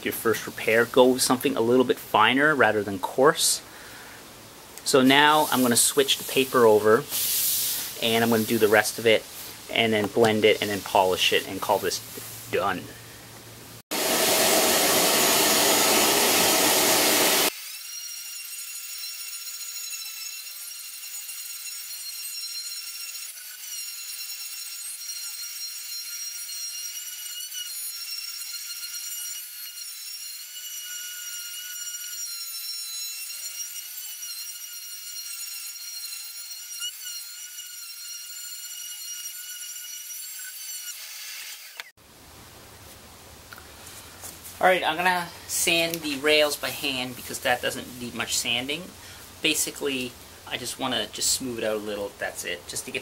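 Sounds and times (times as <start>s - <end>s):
shop vacuum rushing: 13.9s - 17.5s
oscillating sander whine: 14.0s - 17.5s.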